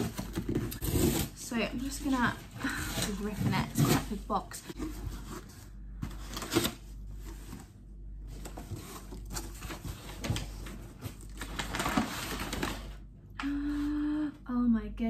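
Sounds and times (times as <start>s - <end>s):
cardboard box ripped open: 0.0s - 1.4s
packing paper crinkling: 8.5s - 13.0s.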